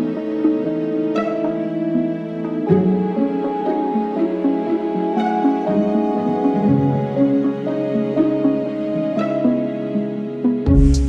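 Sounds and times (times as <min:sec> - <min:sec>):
soft melody with beat and bass: 0:10.6 - 0:11.0.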